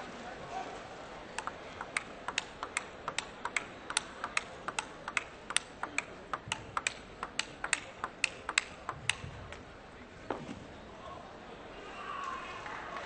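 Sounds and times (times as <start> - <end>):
table tennis ball clicking: 1.4 - 9.2.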